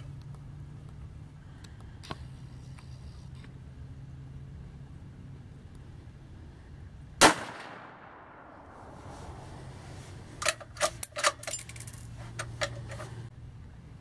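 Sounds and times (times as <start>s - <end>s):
rifle shot with echo: 7.2s - 8.9s.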